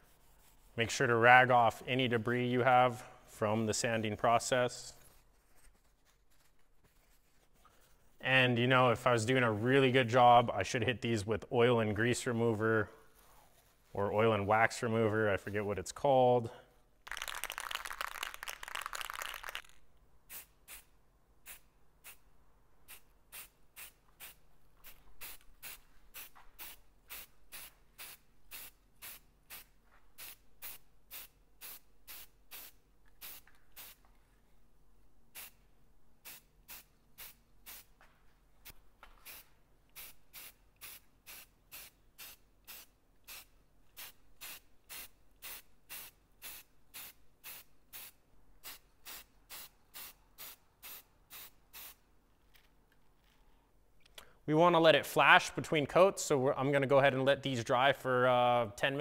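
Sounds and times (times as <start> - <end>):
spray can bursts: 20.3 - 22.2, 22.9 - 34.0, 36.2 - 37.9, 39.2 - 52.0.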